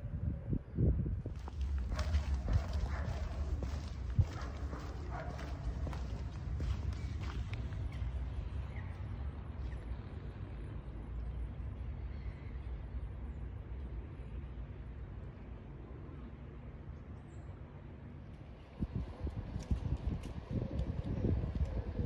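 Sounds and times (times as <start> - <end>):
low rumble: 0.0 - 12.6
street noise: 1.2 - 22.0
horse hoof clops: 1.3 - 7.9.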